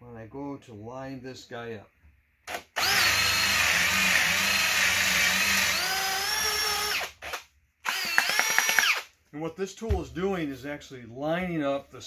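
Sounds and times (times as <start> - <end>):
cordless drill boring wood: 2.5 - 9.1.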